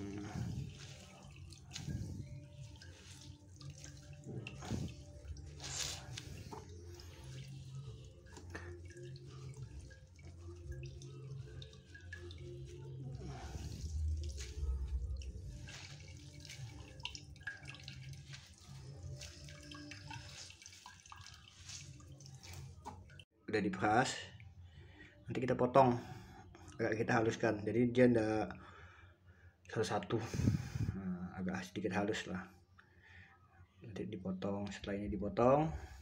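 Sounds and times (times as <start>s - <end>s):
water dripping and trickling: 0.0s - 23.3s, 26.0s - 27.6s.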